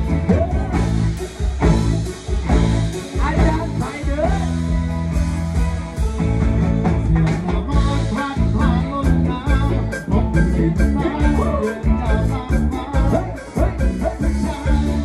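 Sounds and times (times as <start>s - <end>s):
live rock band playing: 0.0s - 15.0s
man singing into microphone: 3.1s - 4.7s, 7.0s - 15.0s.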